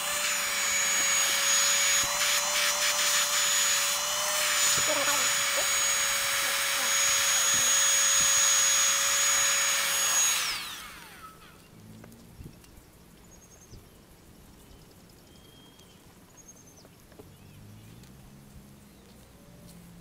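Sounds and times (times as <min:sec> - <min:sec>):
hot air gun whining: 0:00.0 - 0:11.6.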